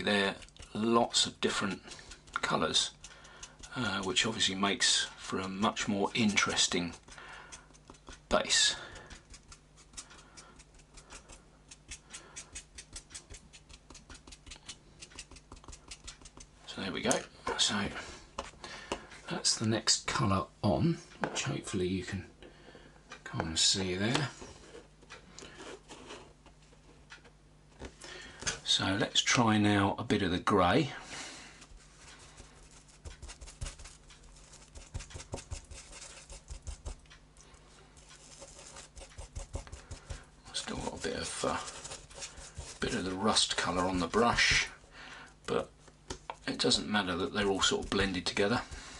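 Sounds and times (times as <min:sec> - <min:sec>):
paintbrush scratching on foam board: 0:00.0 - 0:16.6, 0:31.7 - 0:37.1, 0:38.0 - 0:44.8, 0:46.4 - 0:48.9.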